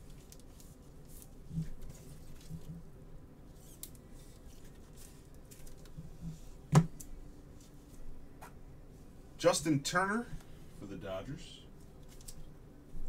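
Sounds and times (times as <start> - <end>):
trading cards and packs rustling: 0.0 - 2.8, 3.5 - 6.1, 12.0 - 12.5.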